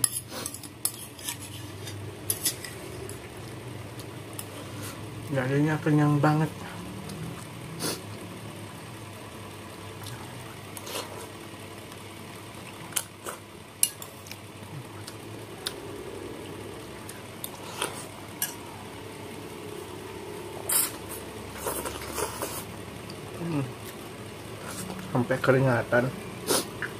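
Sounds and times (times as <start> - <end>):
eating sounds: 12.6 - 18.8, 19.4 - 24.0, 26.4 - 26.9.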